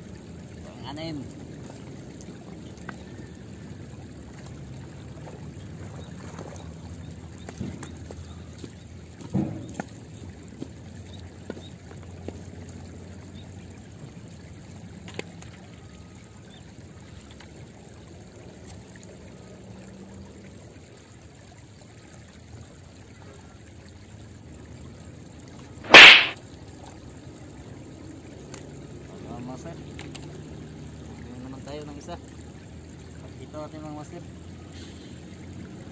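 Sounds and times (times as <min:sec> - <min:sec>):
faint riverside background: 0:00.0 - 0:19.0
sudden loud burst of noise: 0:25.9 - 0:26.4.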